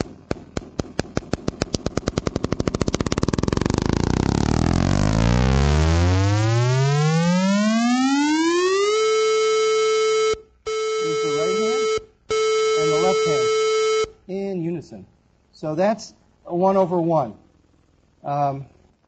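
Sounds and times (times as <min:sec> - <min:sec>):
electronic clicks merging into buzzing tone: 0:00.0 - 0:14.2.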